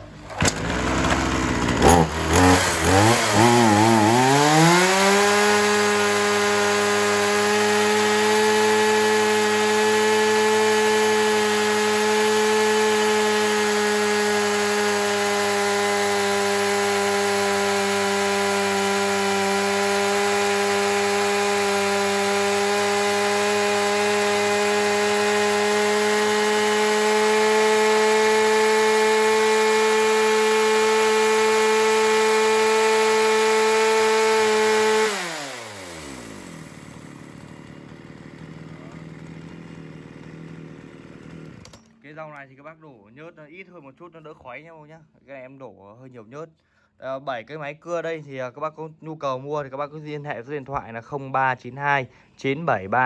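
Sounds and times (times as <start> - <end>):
chainsaw high-revving: 0.3 - 41.9.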